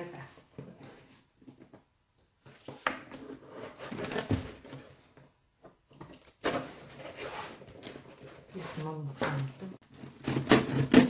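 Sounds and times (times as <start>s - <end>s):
knife scraping cardboard: 9.9s - 11.0s.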